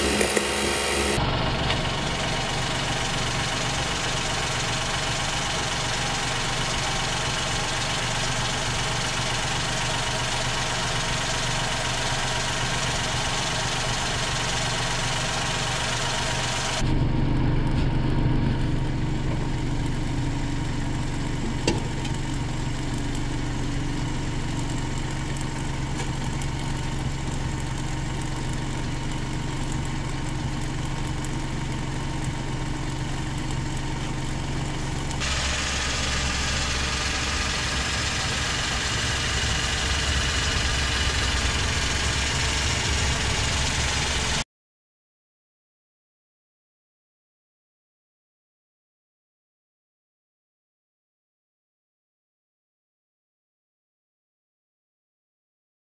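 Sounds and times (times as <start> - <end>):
car engine idling: 0.0 - 44.4.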